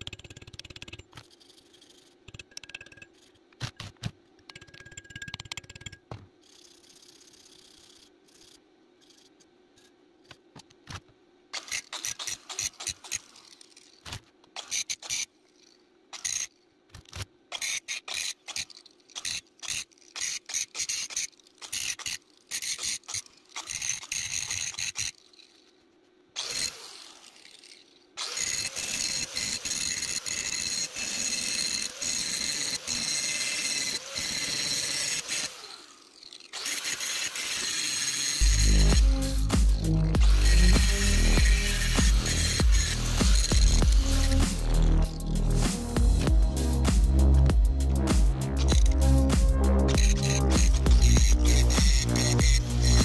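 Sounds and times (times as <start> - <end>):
angle grinder whining: 26.4 - 53.0.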